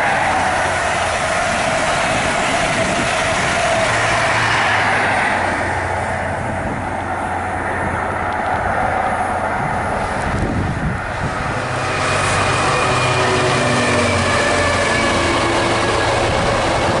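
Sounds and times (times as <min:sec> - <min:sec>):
diesel locomotive approaching: 0:00.0 - 0:17.0
passing train noise: 0:00.0 - 0:17.0.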